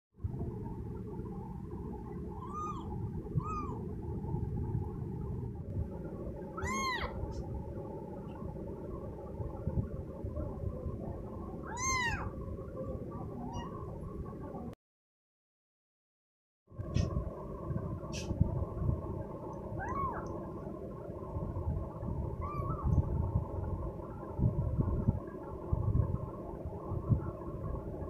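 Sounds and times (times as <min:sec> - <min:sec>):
steady low rumble: 0:00.2 - 0:14.8, 0:16.7 - 0:28.0
kitten meowing: 0:02.4 - 0:03.8, 0:06.6 - 0:07.2, 0:11.6 - 0:12.3, 0:13.4 - 0:13.8, 0:19.8 - 0:20.3, 0:22.4 - 0:22.8.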